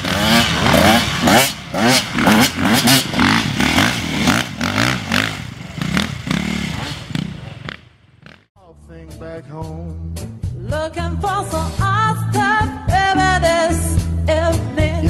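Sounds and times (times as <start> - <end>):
dirt bike engine revving: 0.0 - 8.5.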